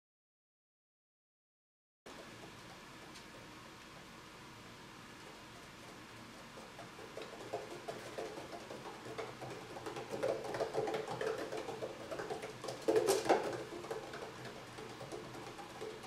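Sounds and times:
paws pattering on exercise wheel: 2.1s - 4.0s, 5.1s - 16.0s
wheel knocks: 6.8s - 16.0s.

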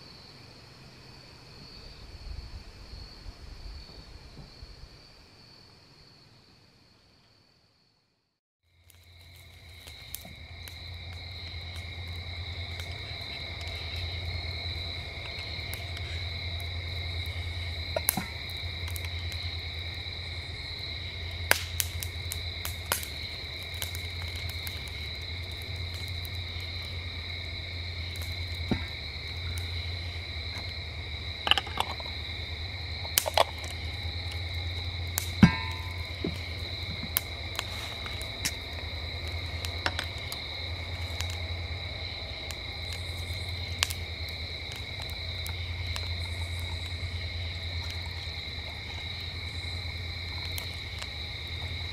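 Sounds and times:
crickets chirring: 0.0s - 51.9s
steady low hum: 10.3s - 51.9s
sharp clicks and pops: 15.2s - 19.4s, 21.3s - 27.0s, 31.4s - 32.3s, 33.0s - 41.5s.

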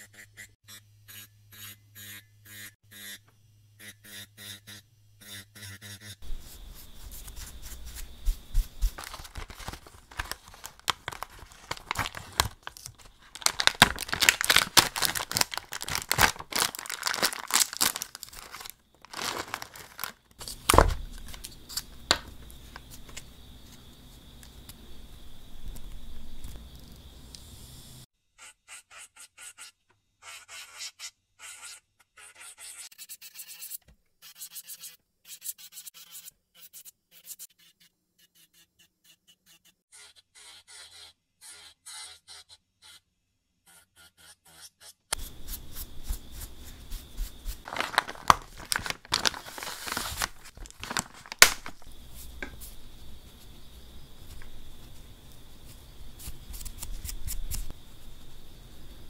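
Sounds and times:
plastic bag crinkling: 9.0s - 21.4s, 47.6s - 51.9s.

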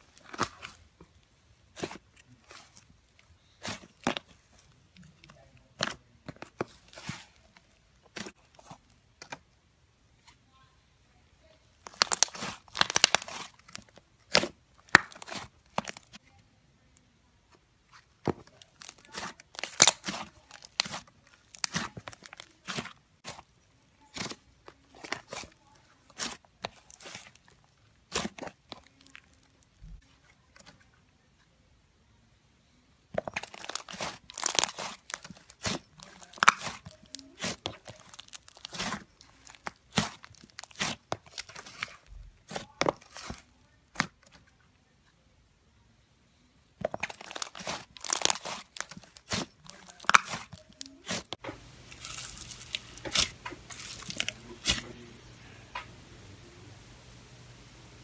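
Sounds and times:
hands pressing foam beads: 11.8s - 16.2s, 18.0s - 30.0s, 33.1s - 44.4s, 46.8s - 54.9s
slime crackling and popping: 11.8s - 16.2s, 18.2s - 23.4s, 33.1s - 44.3s, 46.8s - 54.9s.

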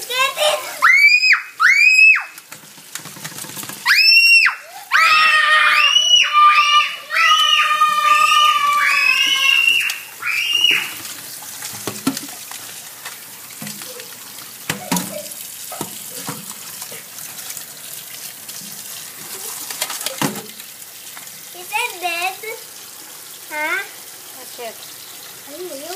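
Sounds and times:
tap water running into colander: 0.0s - 25.9s
crabs and basket clicking and knocking: 2.3s - 4.2s, 10.6s - 17.0s, 18.5s - 21.3s.

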